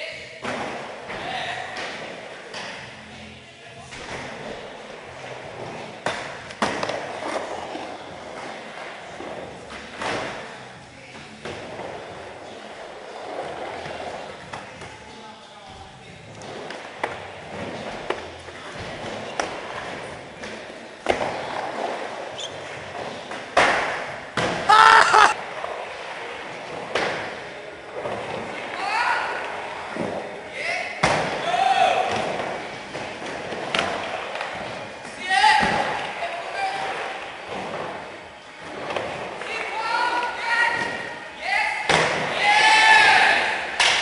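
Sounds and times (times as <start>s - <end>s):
skateboard wheels rolling: 3.9s - 14.8s.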